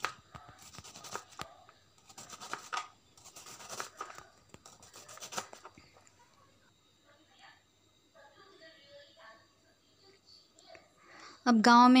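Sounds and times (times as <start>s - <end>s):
knife slicing onion: 0.0s - 5.8s.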